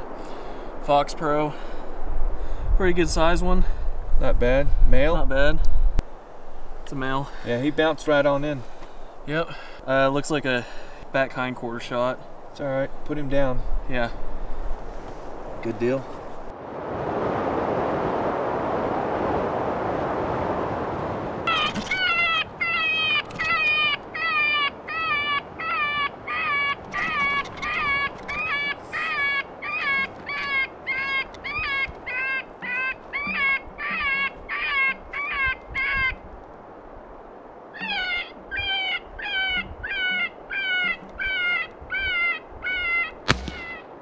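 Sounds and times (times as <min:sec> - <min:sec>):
rifle shot: 0:43.3 - 0:43.8.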